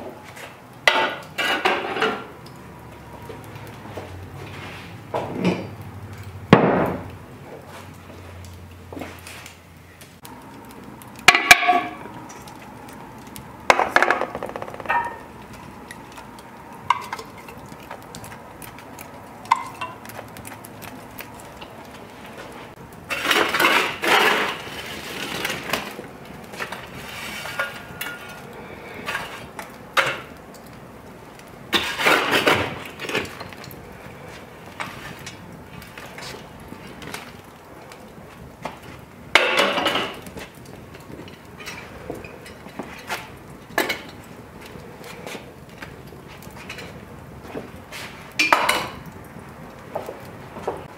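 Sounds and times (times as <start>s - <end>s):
coals tumbling and scraping: 0.0s - 50.9s
metal shovel clinking on iron pots: 0.9s - 2.6s, 11.2s - 12.5s, 16.7s - 18.4s, 19.4s - 20.2s, 23.1s - 24.8s, 26.6s - 30.4s, 39.3s - 44.3s, 48.3s - 49.1s.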